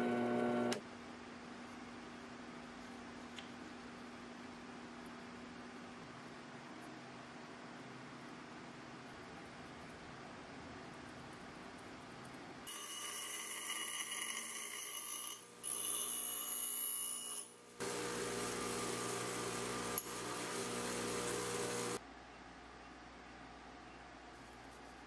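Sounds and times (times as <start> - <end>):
motor hum: 0.0 - 0.8, 17.8 - 22.0
bench grinder grinding steel: 12.7 - 22.0.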